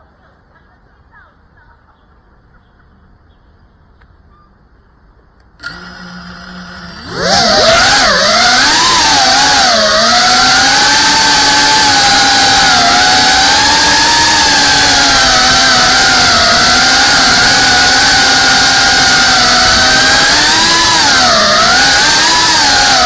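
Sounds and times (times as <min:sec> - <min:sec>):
drone motors whining: 0:05.6 - 0:23.0.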